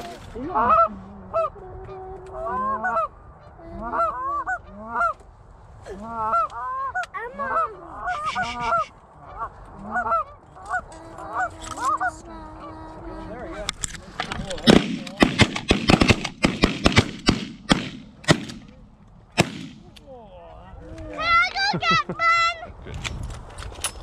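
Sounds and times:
geese honking and clucking: 0.0 - 5.2, 6.0 - 12.7.

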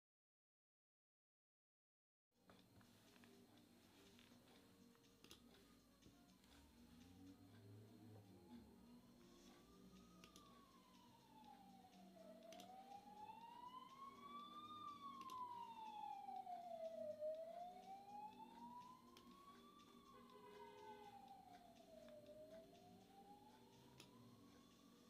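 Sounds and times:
emergency siren wailing: 5.4 - 25.0.

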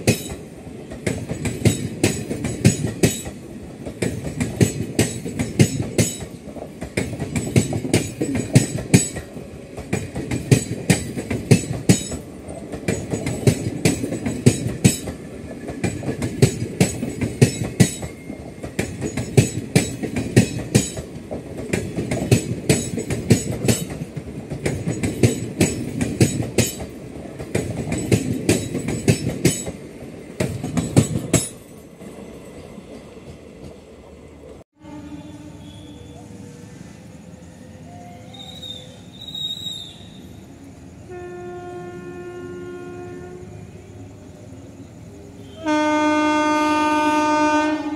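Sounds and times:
train wheels clattering on rails: 0.0 - 33.9
train low rumble: 0.0 - 47.9.

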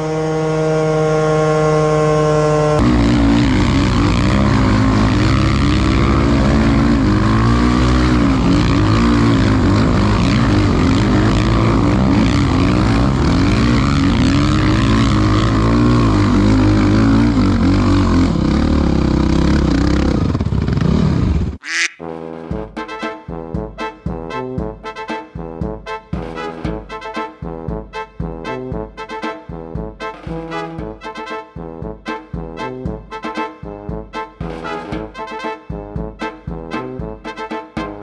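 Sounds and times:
atv engine revving: 0.0 - 21.6.

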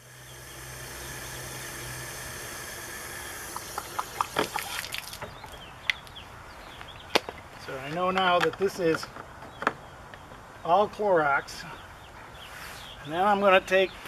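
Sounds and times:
water running from a hose: 0.0 - 5.6
water splashing on pavement: 3.5 - 6.1.

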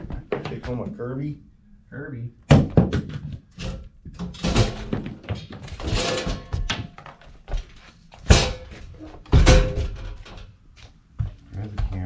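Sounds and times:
sharp knocks: 2.5 - 3.4
metal cover clunking and scraping: 3.0 - 7.0, 8.2 - 10.5.

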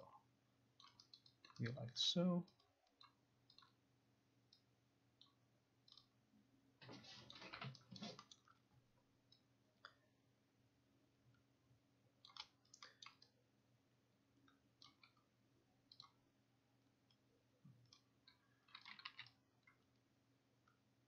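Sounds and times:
computer mouse and keyboard clicking: 0.8 - 1.8, 2.5 - 3.8, 4.5 - 6.2, 6.8 - 8.6, 12.2 - 13.4, 14.8 - 15.3, 15.9 - 16.2, 17.1 - 20.0.

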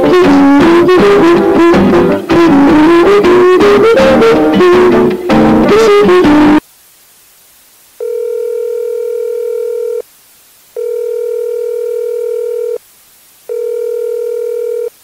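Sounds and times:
telephone ringing tone: 8.0 - 10.0, 10.8 - 12.8, 13.5 - 14.9.

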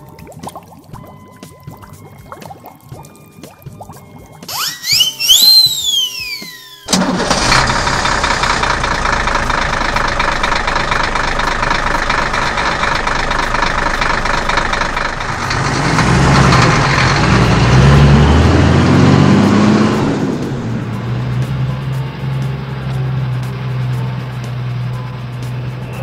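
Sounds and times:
falling whistle effect: 4.4 - 7.0
truck engine revving: 4.5 - 26.0.

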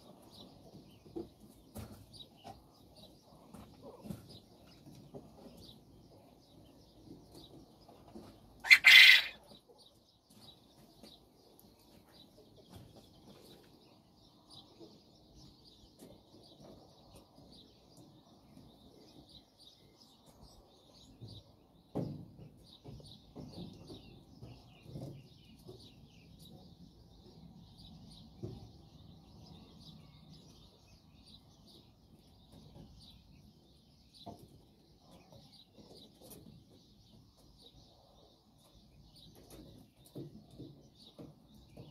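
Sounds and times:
faint rustles and knocks: 0.0 - 8.6, 9.6 - 29.8, 38.5 - 41.9
quail call: 8.6 - 9.4.

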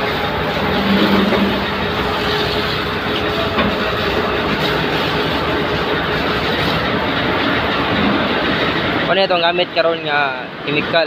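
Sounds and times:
diesel vehicle engine running: 0.0 - 11.0.

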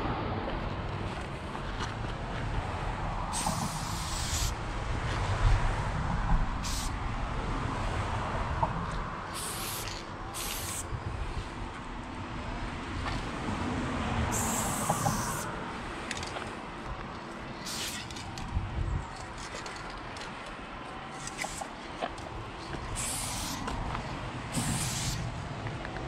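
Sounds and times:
steady low rumble: 0.0 - 26.0
spray paint can hissing: 3.3 - 4.6, 6.6 - 7.0, 9.3 - 10.9, 14.3 - 15.5, 17.6 - 18.2, 21.2 - 21.7, 22.8 - 23.8, 24.5 - 25.3.

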